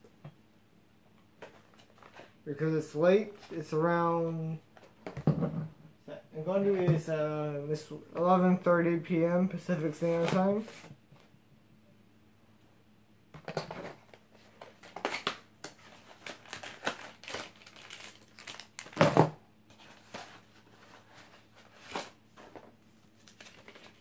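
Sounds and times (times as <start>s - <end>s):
plastic and cardboard crinkling: 13.5s - 24.0s
packaging crunch: 14.7s - 19.2s.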